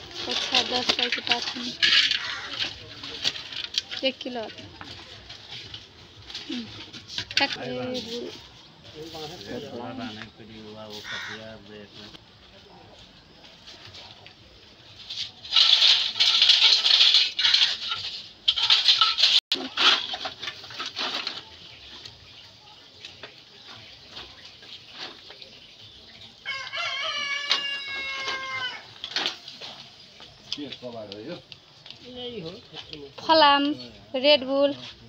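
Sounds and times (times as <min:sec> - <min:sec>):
plastic sack rustling and scraping: 0:00.0 - 0:10.0, 0:14.9 - 0:22.5
rooster crowing: 0:26.4 - 0:29.0.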